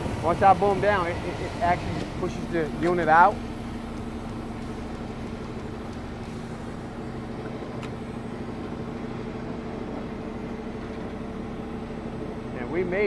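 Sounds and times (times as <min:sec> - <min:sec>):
truck engine and hydraulics humming: 0:00.0 - 0:13.0.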